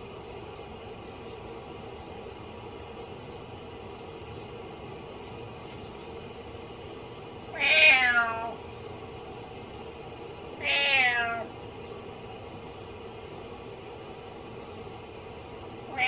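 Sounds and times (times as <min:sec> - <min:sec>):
steady hum: 0:00.0 - 0:16.0
cat meowing: 0:07.5 - 0:08.6, 0:10.6 - 0:11.5.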